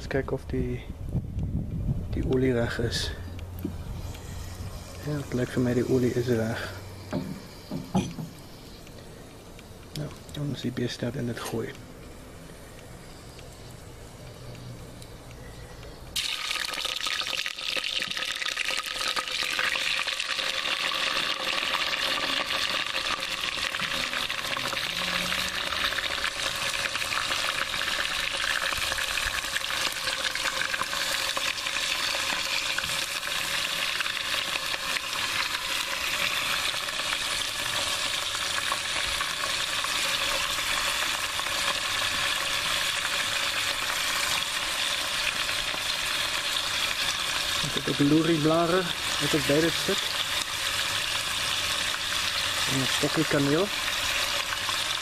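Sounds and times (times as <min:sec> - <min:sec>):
meat sizzling in hot oil: 0:04.0 - 0:08.8, 0:16.2 - 0:55.0.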